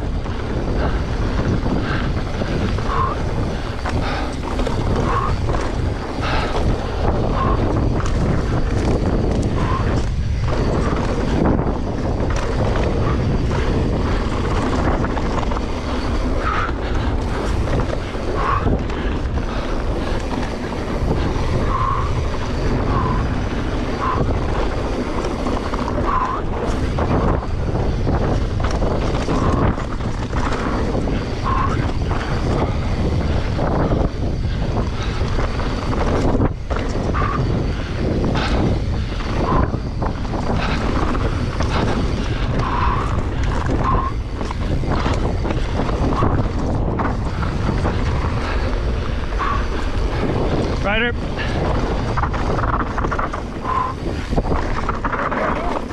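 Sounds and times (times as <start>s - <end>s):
bike rattling over bumps: 0.0s - 55.9s
tyres rolling over dirt: 0.0s - 55.9s
wind buffeting microphone: 0.0s - 55.9s.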